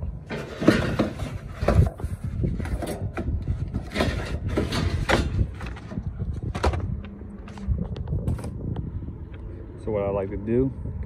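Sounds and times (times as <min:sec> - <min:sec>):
air filters scraping and rustling: 0:00.0 - 0:08.8
steady low rumble: 0:00.0 - 0:11.0.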